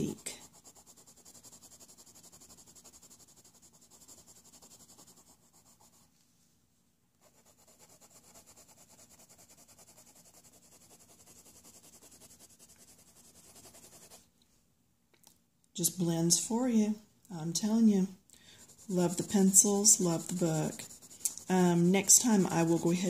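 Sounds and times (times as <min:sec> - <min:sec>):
coloured pencil scratching on paper: 0:00.0 - 0:06.1, 0:07.2 - 0:14.2, 0:18.5 - 0:23.0.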